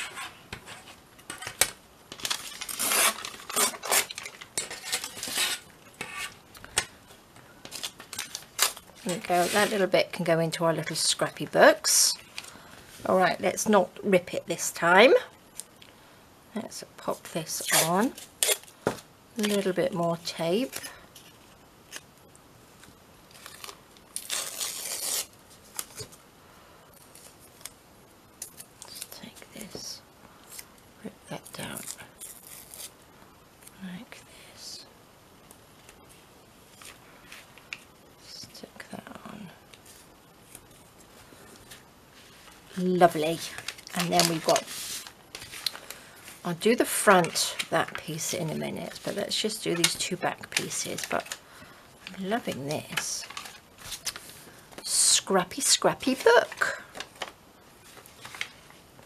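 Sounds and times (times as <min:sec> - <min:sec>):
paper tearing: 0:02.4 - 0:06.3, 0:23.5 - 0:25.3.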